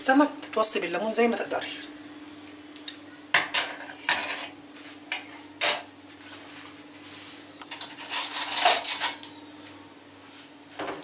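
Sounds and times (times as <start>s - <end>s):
faint hum: 0.0s - 11.0s
metal utensils clinking on ceramic: 7.7s - 9.2s.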